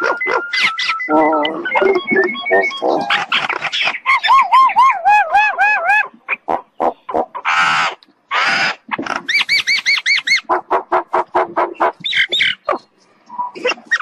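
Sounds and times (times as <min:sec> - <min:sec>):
bird whistling: 0:00.0 - 0:05.0
harsh rasping bird calls: 0:00.0 - 0:14.0.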